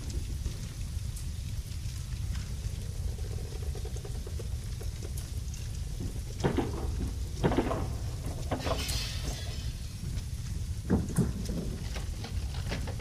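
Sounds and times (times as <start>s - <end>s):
fire roaring and crackling: 0.0s - 13.0s
loud cracks and pops: 3.9s - 13.0s.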